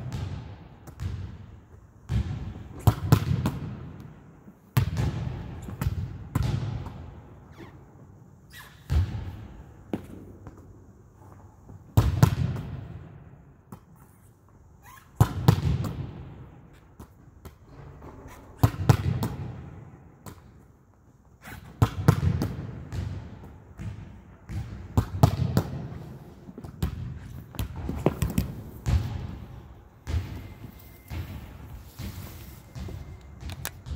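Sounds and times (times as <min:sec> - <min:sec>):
volleyball slaps with echo: 0:00.0 - 0:04.1, 0:04.8 - 0:07.2, 0:08.8 - 0:10.6, 0:12.0 - 0:13.0, 0:15.2 - 0:16.4, 0:18.6 - 0:20.5, 0:21.7 - 0:32.2.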